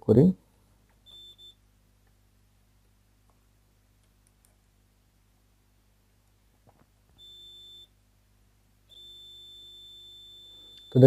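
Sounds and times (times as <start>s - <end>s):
multimeter continuity beep: 1.0s - 1.7s, 7.2s - 8.0s, 8.9s - 11.0s.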